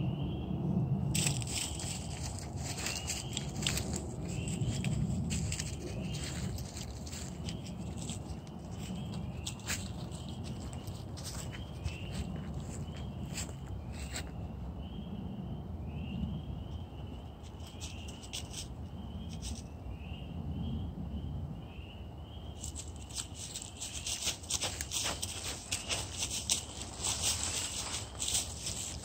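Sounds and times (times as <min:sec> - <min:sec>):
steady low rumble: 0:00.0 - 0:29.0
sharp clicks and rustling crackles: 0:01.2 - 0:11.6, 0:22.6 - 0:29.0.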